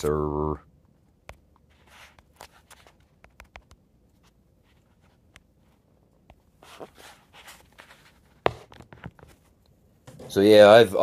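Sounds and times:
soft rustle: 0:01.6 - 0:09.7.

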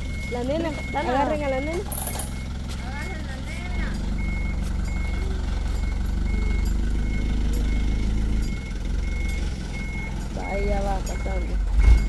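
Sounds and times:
reversing alarm beeping: 0:00.0 - 0:12.0
truck engine running: 0:00.0 - 0:12.0.

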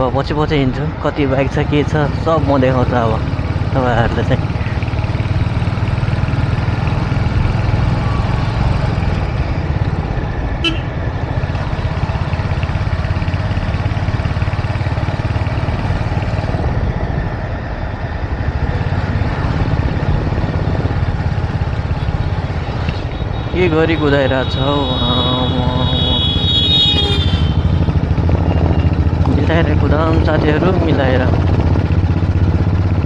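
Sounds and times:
motorcycle engine running: 0:01.4 - 0:33.0.

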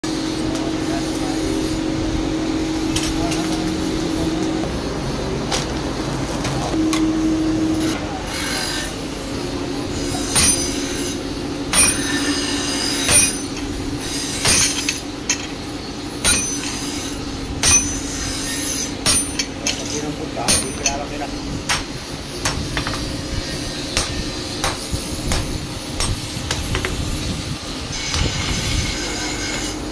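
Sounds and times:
steady hum: 0:00.0 - 0:29.9
hammer striking chisel on metal: 0:10.2 - 0:15.5, 0:16.2 - 0:23.1, 0:23.9 - 0:27.0.

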